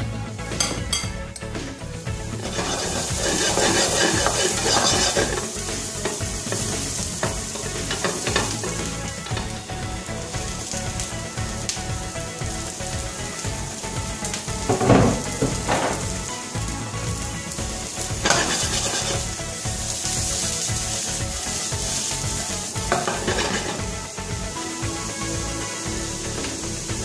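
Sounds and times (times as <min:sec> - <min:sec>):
food sizzling in a frying pan: 0:01.8 - 0:27.0
couscous stirred in a glass bowl: 0:02.5 - 0:05.4.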